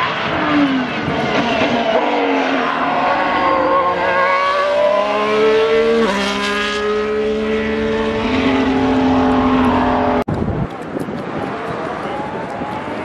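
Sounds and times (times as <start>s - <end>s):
racing car engine accelerating: 0.0s - 10.3s.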